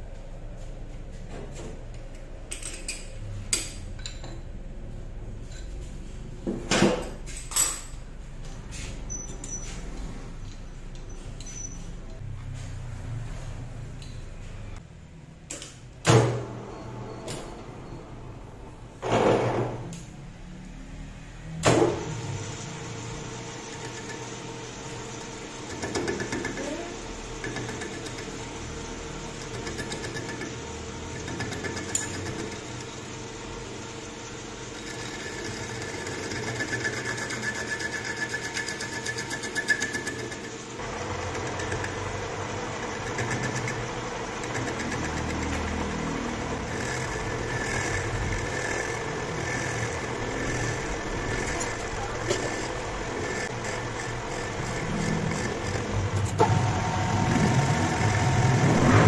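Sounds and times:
metal lathe whirring: 22.0s - 59.0s.

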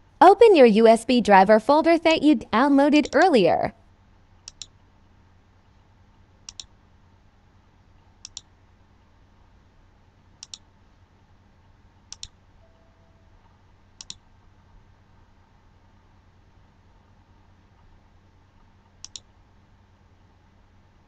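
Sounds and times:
faint low hum: 0.0s - 21.0s
computer mouse clicking: 4.4s - 4.8s, 6.4s - 6.7s, 8.2s - 8.5s, 10.4s - 10.7s, 12.1s - 12.4s, 14.0s - 14.2s, 19.0s - 19.3s.

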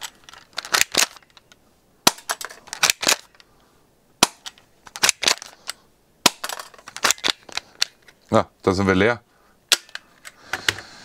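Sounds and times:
airsoft pistol cracks: 4.2s - 5.4s, 6.2s - 7.3s, 9.7s - 10.1s.

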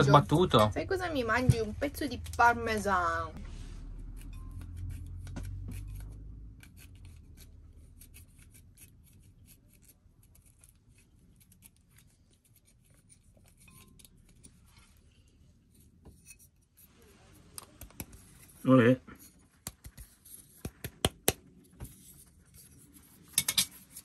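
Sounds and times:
low hum: 0.7s - 7.9s
kitchen utensils scraping and clicking: 13.4s - 14.7s, 22.1s - 24.0s.

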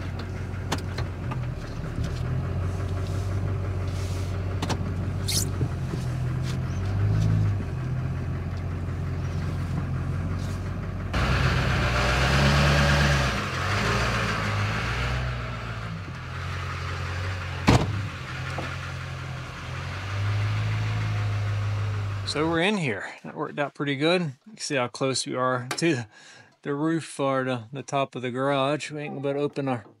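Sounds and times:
diesel truck engine running: 0.0s - 22.8s.

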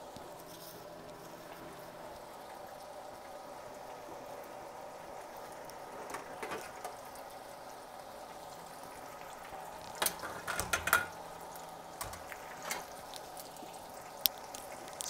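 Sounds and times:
hot oil sizzling and bubbling: 0.0s - 15.0s
fryer lid clicks: 10.0s - 11.2s.

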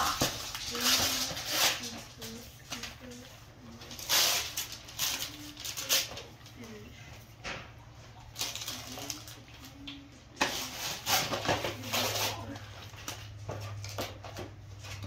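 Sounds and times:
wrapping paper tearing and crumpling: 0.0s - 6.5s, 8.3s - 9.8s, 10.4s - 13.9s.

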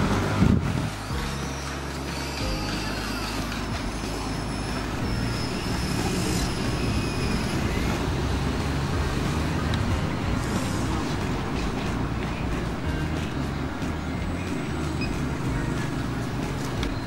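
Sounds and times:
toy excavator motor rumble: 0.0s - 13.7s
faint high whine: 0.8s - 12.4s.

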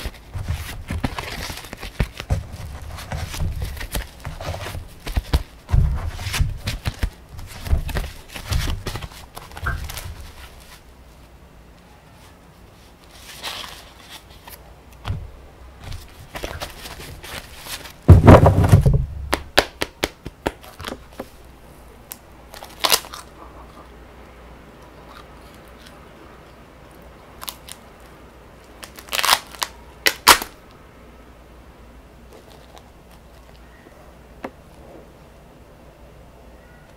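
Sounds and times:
paper stack crunching and tearing: 0.0s - 10.8s, 15.8s - 19.0s, 28.8s - 30.6s.

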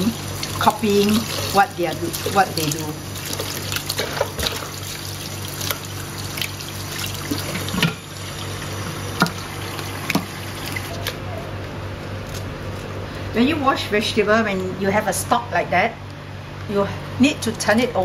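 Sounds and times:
tap running into basin: 0.0s - 11.2s.

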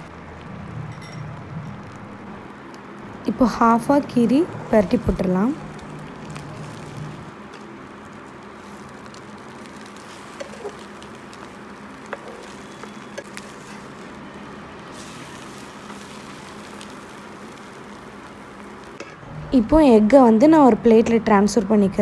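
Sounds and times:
omelette sizzling in a pan: 1.8s - 19.2s.

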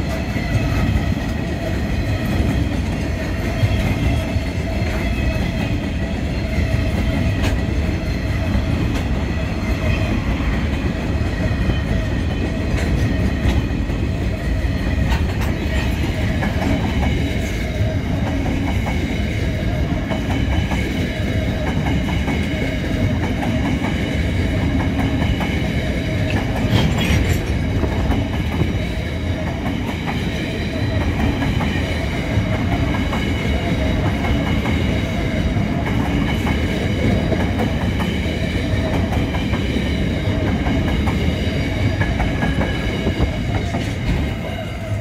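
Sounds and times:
freight train rumbling past: 0.0s - 45.0s
wheels clicking over rail joints: 26.2s - 28.8s.

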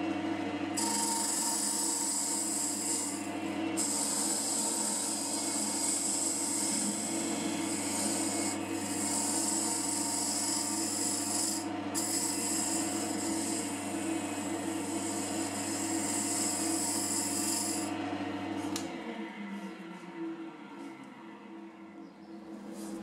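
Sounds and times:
lathe motor hum: 0.0s - 21.6s
cutter hissing on wood: 0.8s - 17.9s.

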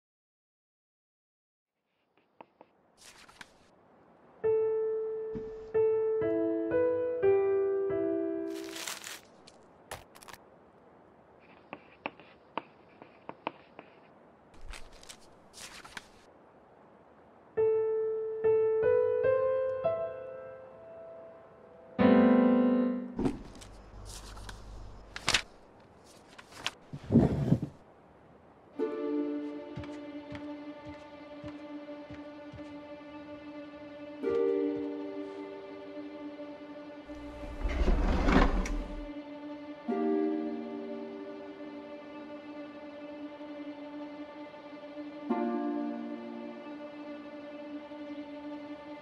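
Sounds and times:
rustling noises: 1.8s - 3.7s, 8.5s - 10.4s, 11.3s - 16.3s, 23.3s - 27.8s
slow quiet piano notes: 17.6s - 25.0s
faint rustles: 23.5s - 27.8s.

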